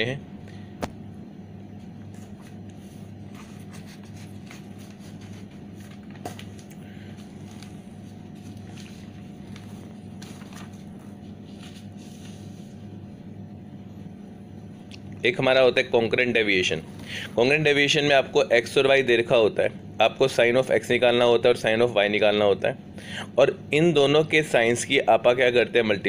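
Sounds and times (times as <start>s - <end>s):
low hum with pulsing beat: 0.0s - 15.3s
paper sheets rustling: 2.1s - 12.8s.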